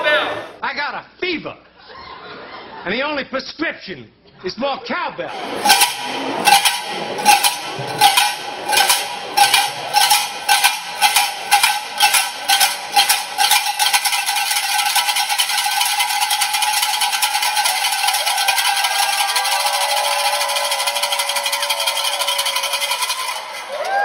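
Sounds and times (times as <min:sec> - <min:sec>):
cowbells clanging: 0:05.3 - 0:24.0.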